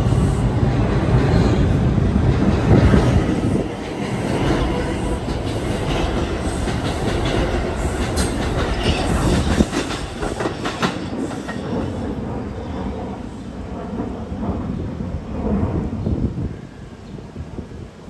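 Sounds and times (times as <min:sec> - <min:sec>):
subway train rumbling: 0:00.0 - 0:18.0.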